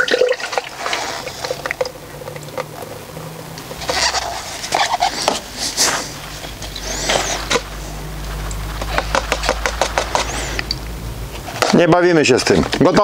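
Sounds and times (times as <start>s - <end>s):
plastic cups taps and clicks: 0.1s - 3.9s, 8.5s - 10.8s
paper rustling: 3.8s - 10.7s.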